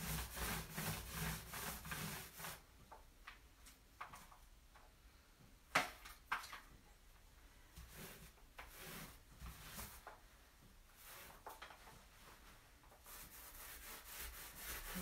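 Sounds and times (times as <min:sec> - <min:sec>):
paint roller rubbing: 0:00.0 - 0:02.7, 0:07.8 - 0:10.2, 0:10.9 - 0:15.0.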